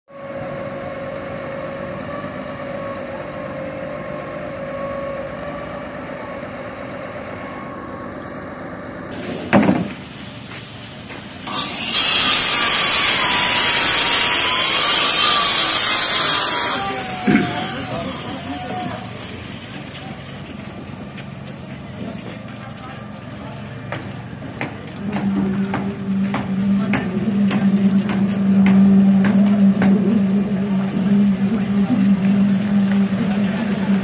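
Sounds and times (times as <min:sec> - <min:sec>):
concrete pump humming and whining: 0:00.1 - 0:34.0
loud high hissing: 0:09.1 - 0:20.4
loud thump: 0:09.2 - 0:10.1.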